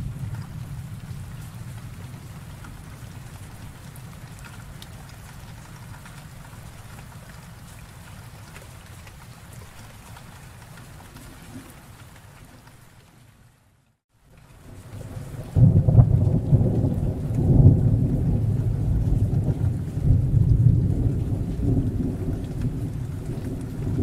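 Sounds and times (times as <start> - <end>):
thunder rumble: 0.0 - 5.7, 14.6 - 24.0
steady rain falling: 0.0 - 24.0.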